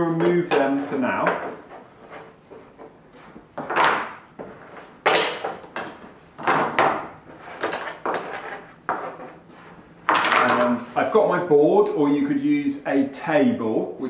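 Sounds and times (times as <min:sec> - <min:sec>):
wood shuffling and scraping: 0:00.0 - 0:11.2
wooden pieces clacking on workbench: 0:03.6 - 0:09.4, 0:10.1 - 0:10.9.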